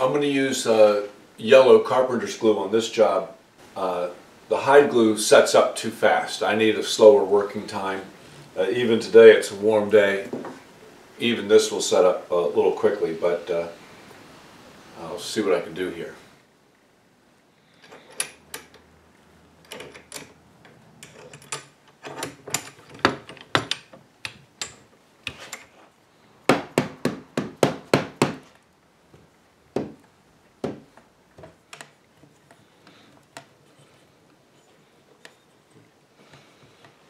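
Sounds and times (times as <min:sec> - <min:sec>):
hammer knocking on wooden joint: 0:26.5 - 0:28.5, 0:29.8 - 0:30.0, 0:30.6 - 0:31.5.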